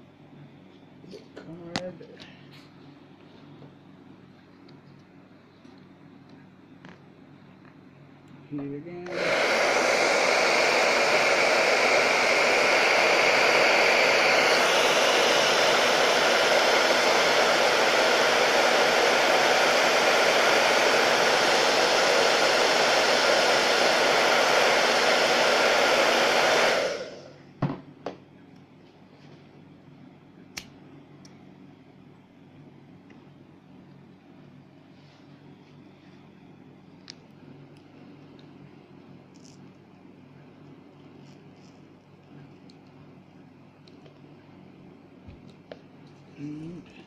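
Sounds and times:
hair dryer blowing: 0:09.0 - 0:27.4.

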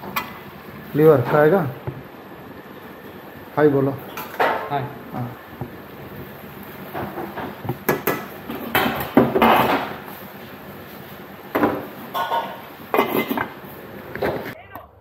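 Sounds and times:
spoon and lid clattering on pot: 0:12.1 - 0:13.5.

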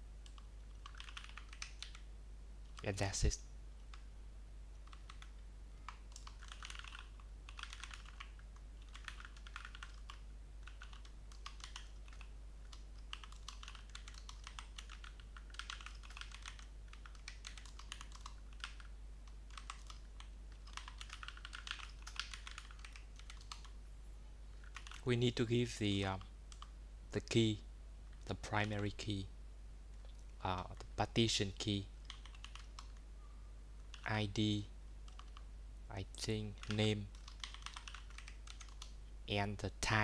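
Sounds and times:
typing on keyboard: 0:00.2 - 0:02.1, 0:04.8 - 0:23.7, 0:24.6 - 0:25.0, 0:32.0 - 0:33.0, 0:33.9 - 0:34.1, 0:35.0 - 0:35.4, 0:36.6 - 0:39.0.

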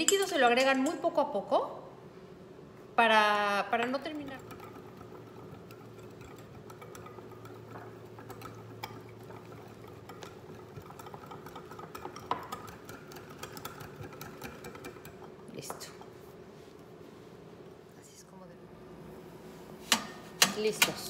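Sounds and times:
metal utensil scraping glass bowl: 0:04.0 - 0:15.3.

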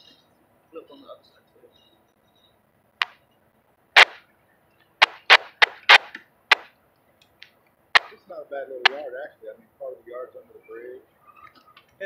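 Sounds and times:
sharp clicks or knocks: 0:04.0 - 0:04.2, 0:05.0 - 0:06.7, 0:08.0 - 0:08.2.

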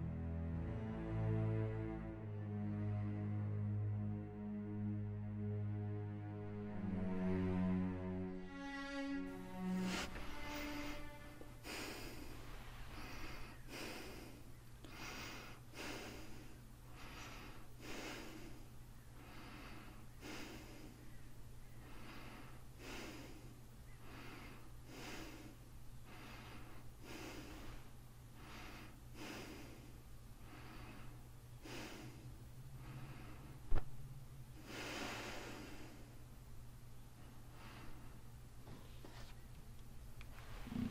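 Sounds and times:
low steady hum: 0:00.0 - 0:40.9
person breathing: 0:09.3 - 0:33.9, 0:34.5 - 0:36.3, 0:37.2 - 0:39.3, 0:40.3 - 0:40.9.

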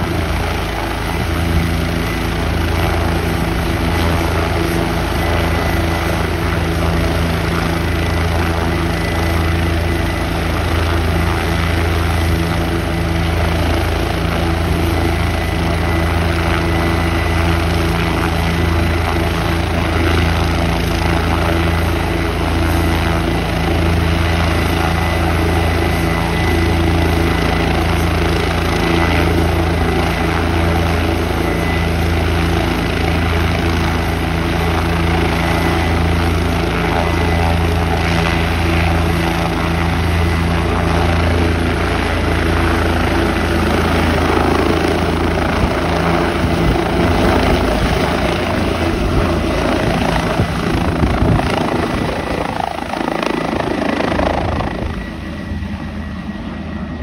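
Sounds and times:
helicopter running: 0:00.0 - 0:57.0.

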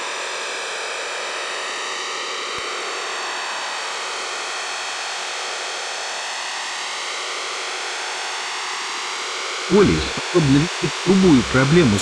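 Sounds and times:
shortwave radio hiss: 0:09.7 - 0:12.0.

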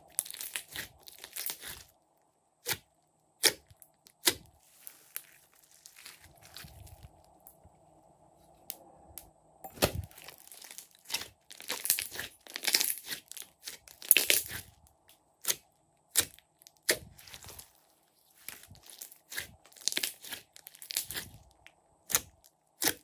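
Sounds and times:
slime crackling and popping: 0:00.0 - 0:02.0, 0:09.8 - 0:17.8, 0:18.4 - 0:23.0.

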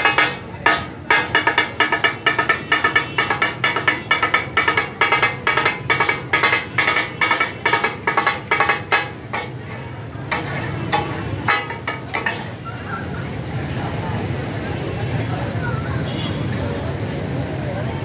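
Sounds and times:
spatulas clanging on iron griddle: 0:00.0 - 0:13.1.

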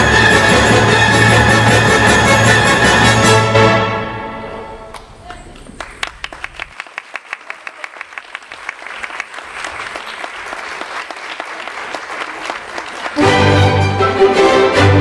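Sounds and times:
loud orchestral music: 0:00.0 - 0:04.9, 0:13.2 - 0:15.0
audience applauding: 0:04.9 - 0:13.5.

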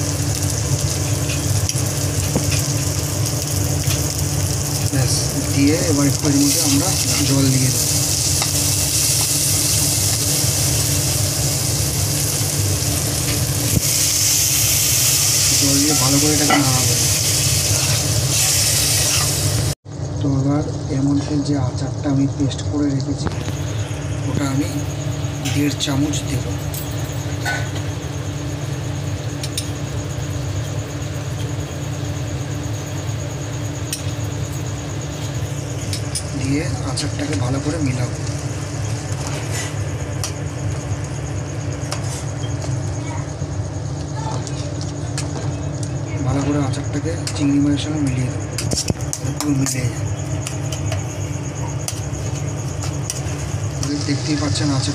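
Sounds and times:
food sizzling in a wok: 0:00.0 - 0:19.8, 0:27.2 - 0:43.2, 0:48.6 - 0:54.9
steady low hum: 0:00.0 - 0:54.9.

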